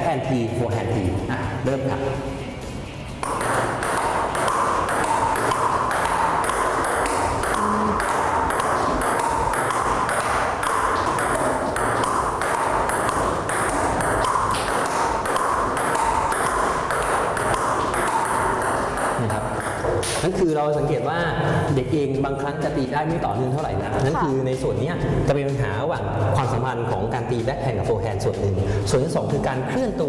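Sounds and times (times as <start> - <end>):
table tennis ball clicking: 3.2 - 20.4.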